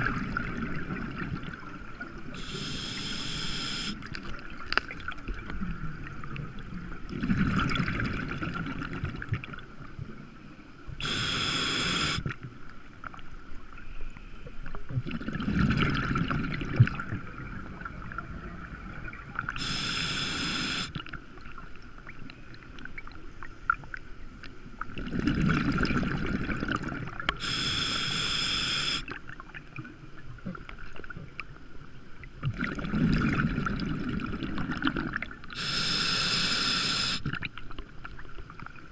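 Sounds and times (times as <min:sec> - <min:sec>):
exhaled bubbles gurgling: 0:00.0 - 0:10.2, 0:14.9 - 0:21.2, 0:24.8 - 0:31.4, 0:32.4 - 0:37.6
regulator inhale hiss: 0:02.4 - 0:04.0, 0:11.0 - 0:12.3, 0:19.6 - 0:21.0, 0:27.4 - 0:29.1, 0:35.5 - 0:37.3.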